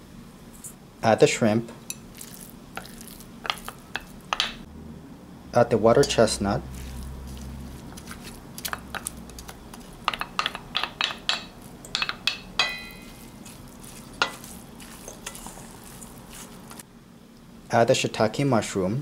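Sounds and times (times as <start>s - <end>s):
wooden spatula scraping and tapping dish: 2.8s - 4.5s, 7.9s - 16.8s.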